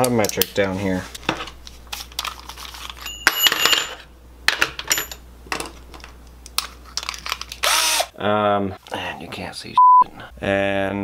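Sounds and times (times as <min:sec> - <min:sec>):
metal tools clinking on countertop: 0:03.0 - 0:05.7.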